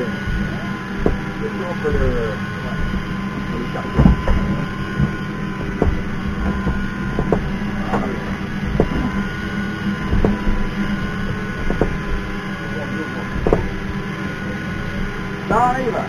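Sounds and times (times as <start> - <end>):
motor humming: 0.0 - 16.0
short knocks: 0.3 - 9.3, 10.0 - 12.4, 13.2 - 14.1.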